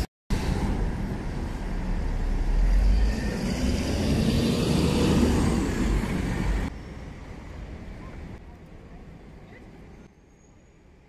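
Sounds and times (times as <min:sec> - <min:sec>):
vehicle passing: 0:00.4 - 0:06.7.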